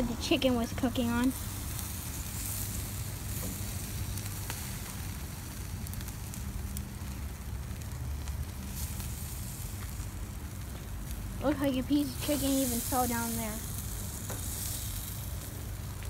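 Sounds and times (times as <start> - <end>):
charcoal burning hiss: 0.0 - 16.0
faint crackles: 0.0 - 16.0.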